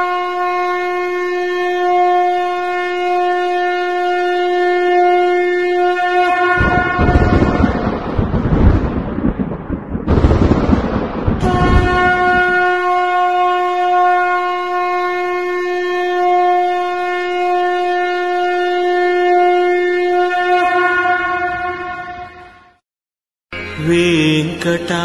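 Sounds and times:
conch shell blown: 0.0s - 7.8s, 11.4s - 22.8s
loud noisy crashes: 6.6s - 12.6s.

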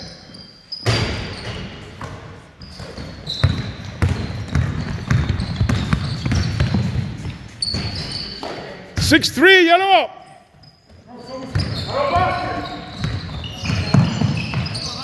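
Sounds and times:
sneakers squeaking on floor: 0.0s - 9.3s, 10.2s - 15.0s
basketball bouncing: 0.9s - 8.1s, 11.5s - 14.8s.

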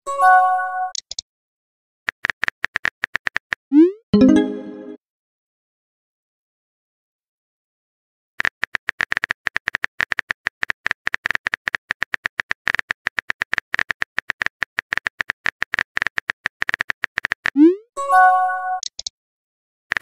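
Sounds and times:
keyboard typing clicks: 0.9s - 1.2s, 8.4s - 17.6s, 18.8s - 19.1s.

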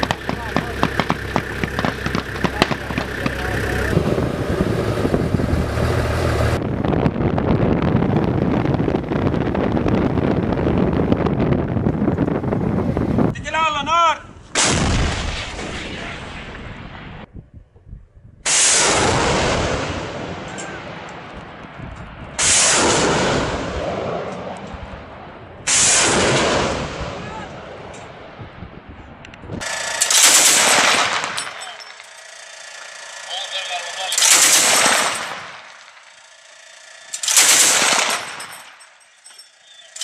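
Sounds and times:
heavy weapon blasts with echo: 0.0s - 4.2s, 29.7s - 32.1s, 34.0s - 36.1s, 37.2s - 38.6s
dense steady rumbling: 0.0s - 32.2s.

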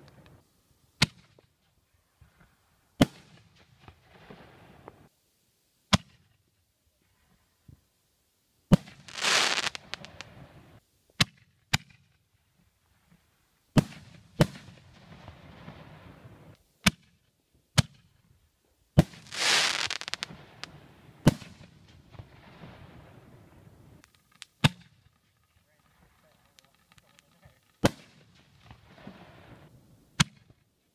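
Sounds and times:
firework shells bursting: 8.8s - 10.4s, 19.0s - 30.5s
firework crackling hiss: 8.8s - 10.8s, 19.0s - 24.7s, 25.9s - 30.2s.

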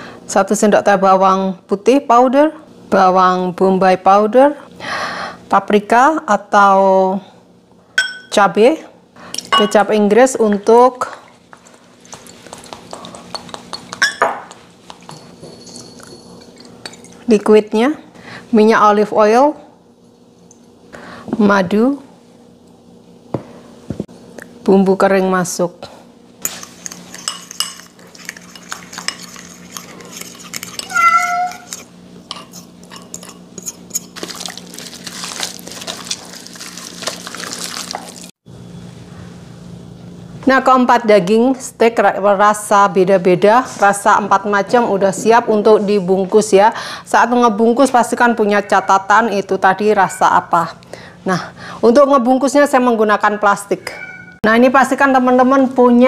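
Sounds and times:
faint steady hum: 0.0s - 56.0s
measuring spoons clinking on bowl: 8.0s - 8.4s, 9.4s - 9.8s, 15.1s - 17.2s, 26.5s - 34.1s
wet mixing rubbing: 11.1s - 15.1s, 26.5s - 38.4s.

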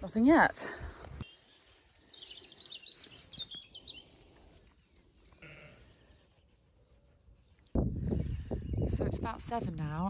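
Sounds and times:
birds chirping: 0.0s - 10.0s
faint sheep bleat: 5.4s - 6.0s.

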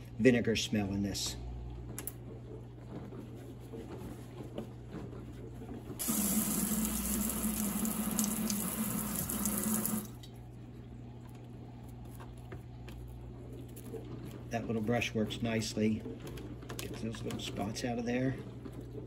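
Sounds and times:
faucet running into steel sink: 6.0s - 10.3s.

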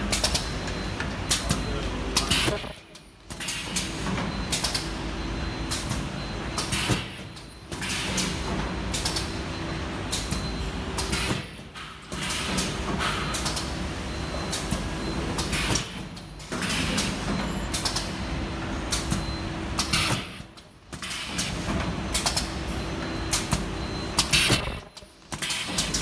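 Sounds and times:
machine clicks and knocks: 23.3s - 26.0s
machine humming: 24.2s - 26.0s.

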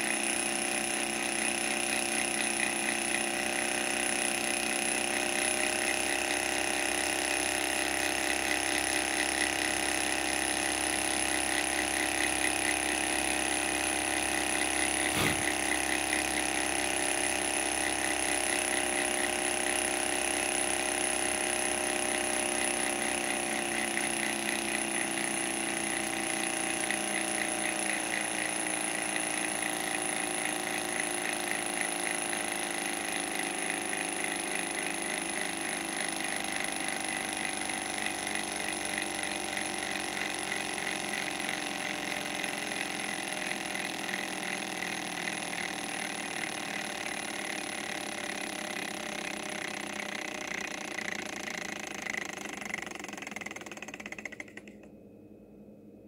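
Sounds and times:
stirling engine mechanical clatter: 37.5s - 54.9s.

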